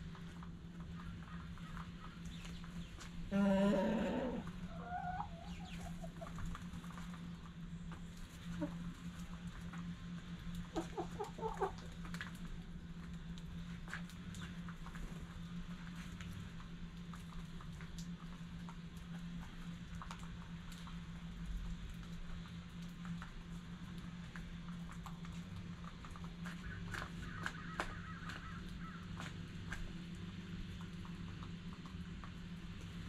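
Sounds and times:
birds pecking at grain: 0.0 - 33.0
steady low hum: 0.0 - 33.0
soft bird calls: 0.9 - 6.4, 26.4 - 29.3.

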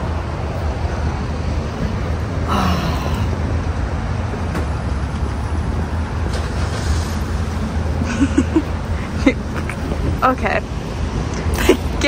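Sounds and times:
traffic noise: 0.0 - 12.0.

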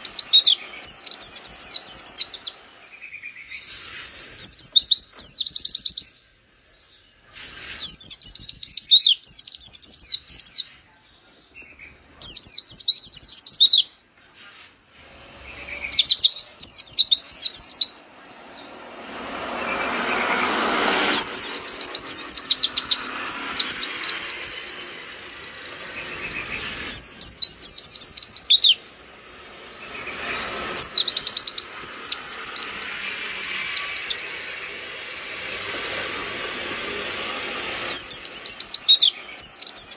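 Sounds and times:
bird twittering: 0.0 - 18.8, 19.6 - 35.2, 36.6 - 39.9
rushing background noise: 0.0 - 39.9.

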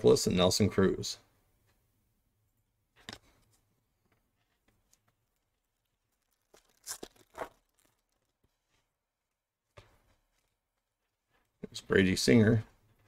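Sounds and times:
foil wrapper ripping: 5.6 - 8.4.

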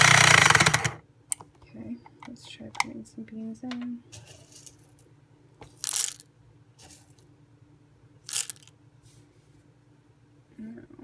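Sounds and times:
coffee beans rattling into grinder: 5.6 - 6.3, 8.3 - 8.7.

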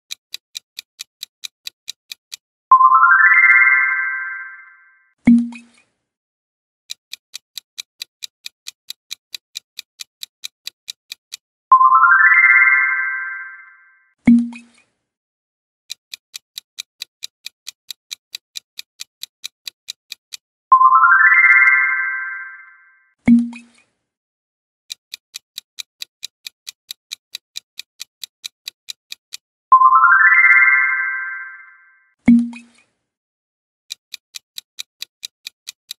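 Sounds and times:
clock ticking: 0.0 - 5.8, 6.9 - 13.6, 14.2 - 14.7, 15.9 - 23.7, 24.9 - 32.7, 33.9 - 35.9
bright chime: 2.7 - 5.0, 11.7 - 14.0, 20.8 - 23.0, 29.8 - 32.0.

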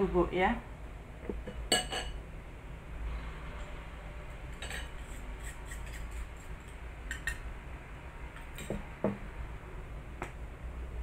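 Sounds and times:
ceramic dishes clinking on bowl: 1.5 - 2.2.

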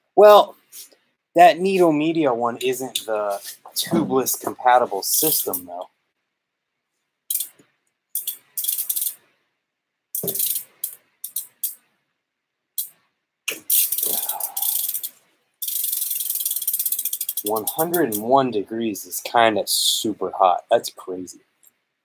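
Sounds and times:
ratchet wrench clicking: 7.3 - 7.6, 8.2 - 9.2, 10.2 - 11.8, 13.7 - 18.2.

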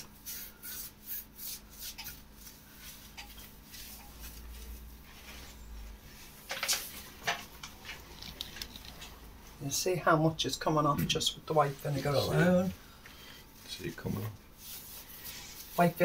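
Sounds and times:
rubbing strokes on tiles: 0.0 - 5.7.

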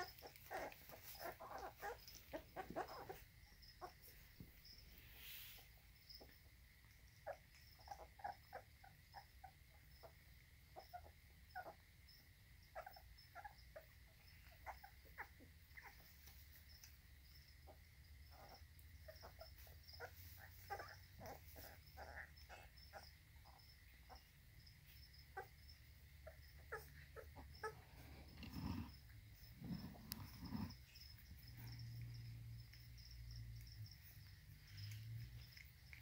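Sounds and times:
puppies smacking and licking: 0.0 - 3.2
crickets chirping: 0.0 - 36.0.

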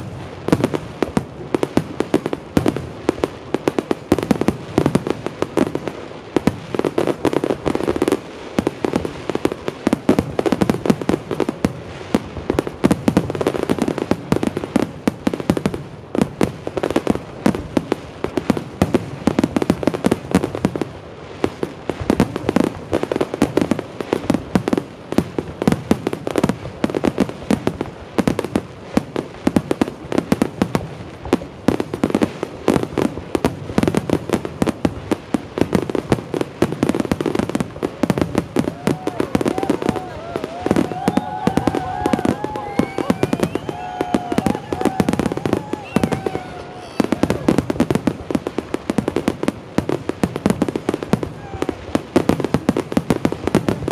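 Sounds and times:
fireworks crackling: 0.0 - 53.9.

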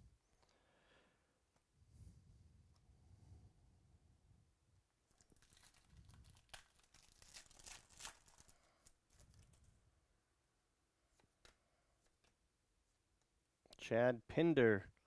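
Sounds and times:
foil wrapper tearing and crinkling: 5.1 - 9.7.

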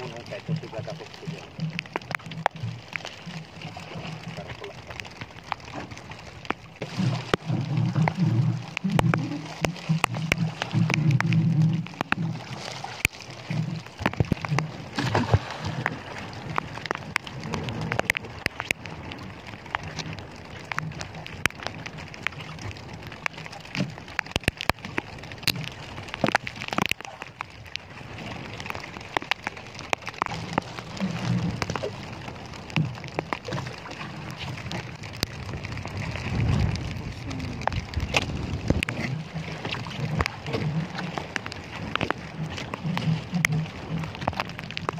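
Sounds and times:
rain pattering on a boat: 0.0 - 44.9
wind rumble on microphone: 0.0 - 44.9.

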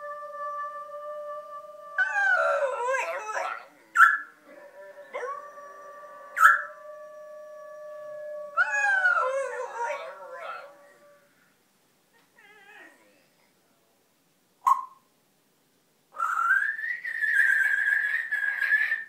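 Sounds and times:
dog howling: 0.9 - 11.3
dog yelping: 14.7 - 15.0
parrot squawking: 16.2 - 19.0.

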